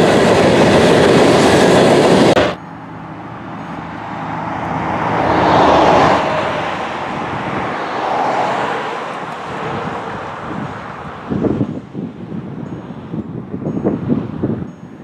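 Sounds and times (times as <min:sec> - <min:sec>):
loud train noise: 0:00.0 - 0:15.0
vehicle passing: 0:01.7 - 0:11.6.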